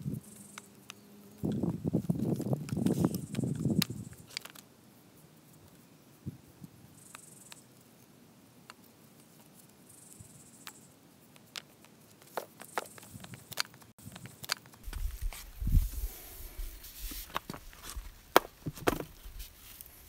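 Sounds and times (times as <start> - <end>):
insects buzzing: 0.0 - 20.0
clicks and crackles: 0.3 - 4.7, 7.0 - 15.5.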